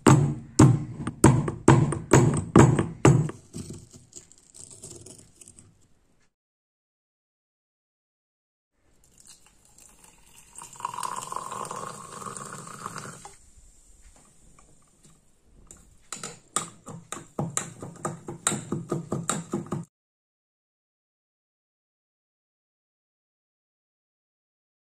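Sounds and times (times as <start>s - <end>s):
liquid pouring into a glass: 9.0s - 13.4s.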